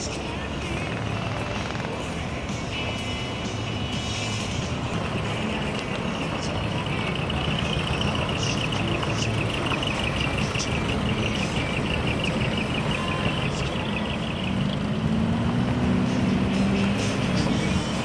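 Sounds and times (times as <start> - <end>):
truck engine running at low speed: 0.0 - 18.0
tyres rolling on gravel: 4.9 - 15.0.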